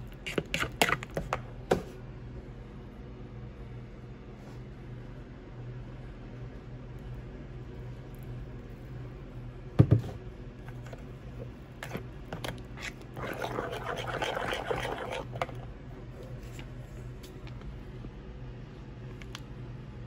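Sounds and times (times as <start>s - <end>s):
steady low hum: 0.0s - 20.0s
wet scraping against bowl: 0.1s - 1.2s, 11.8s - 15.6s
metal spoon stirring batter: 0.1s - 1.4s, 10.7s - 15.6s.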